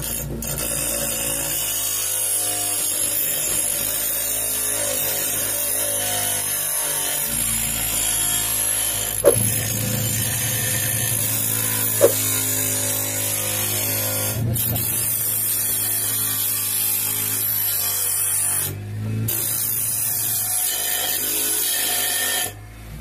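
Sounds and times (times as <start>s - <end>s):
bench grinder grinding steel: 0.0s - 23.0s
sharp knocks: 9.2s - 9.8s, 12.0s - 12.4s.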